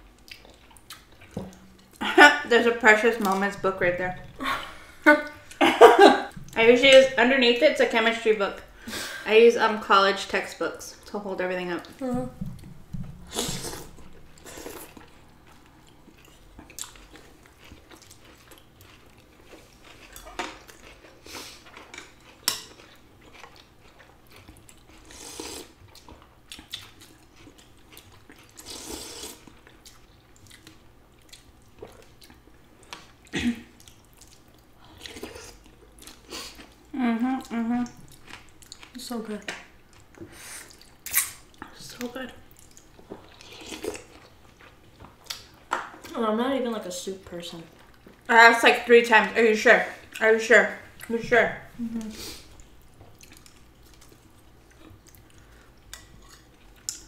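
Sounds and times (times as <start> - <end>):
chewing: 0.1 - 2.0, 13.3 - 39.0, 39.9 - 46.1, 52.0 - 57.0
slurping noodles: 25.0 - 25.8, 28.6 - 29.5
person humming: 37.0 - 38.0, 51.8 - 52.4.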